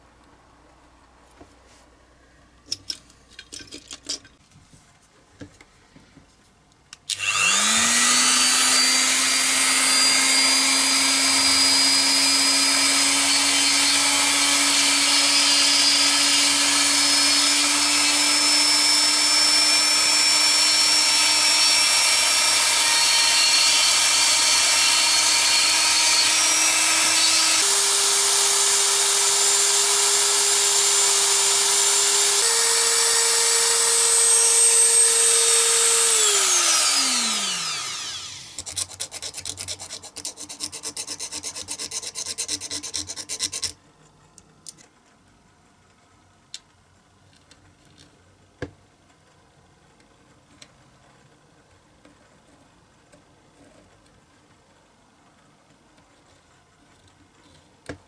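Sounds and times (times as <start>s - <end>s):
rotary tool grinding plastic: 7.1s - 43.8s.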